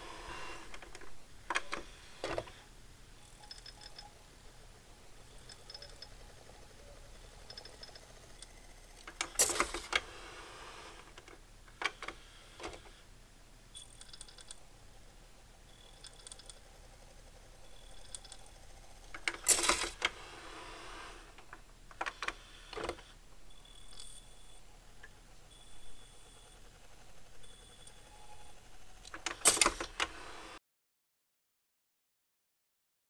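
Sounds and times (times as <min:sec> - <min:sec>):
faint high whines: 0:00.0 - 0:30.6
cd changer mechanism clicking: 0:00.7 - 0:02.6, 0:07.3 - 0:10.1, 0:29.0 - 0:30.2.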